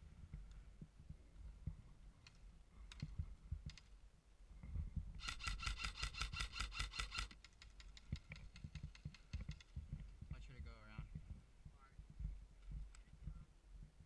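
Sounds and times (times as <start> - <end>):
airsoft rifle full-auto burst: 5.2 - 7.3
faint rapid shots: 5.2 - 7.3.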